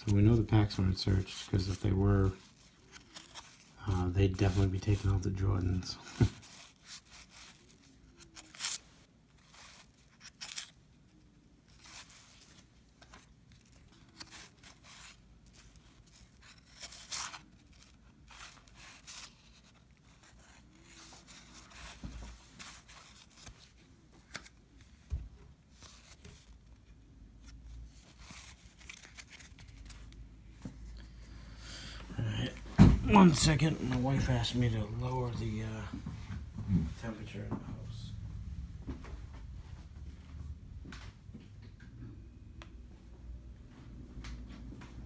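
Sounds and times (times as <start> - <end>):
cards shuffled: 0.0 - 30.8
wrapper paper crinkling and tearing: 6.4 - 24.6, 27.9 - 30.2.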